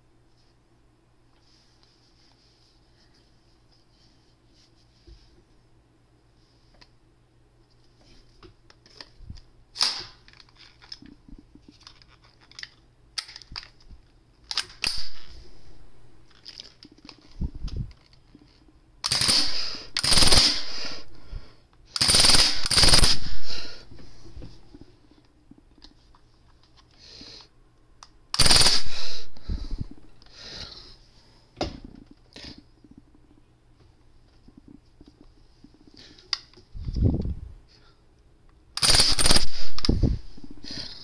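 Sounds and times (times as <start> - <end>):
toy gun firing bursts: 19.0 - 20.8, 22.0 - 23.4, 28.4 - 29.2, 38.8 - 39.9.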